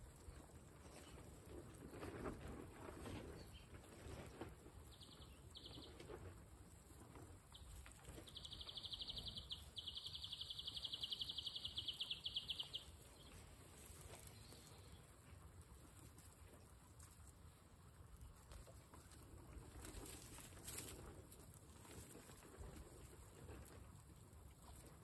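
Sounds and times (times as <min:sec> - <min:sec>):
guinea pigs nibbling grass: 0:00.0 - 0:25.0
hay rustling: 0:12.8 - 0:16.6.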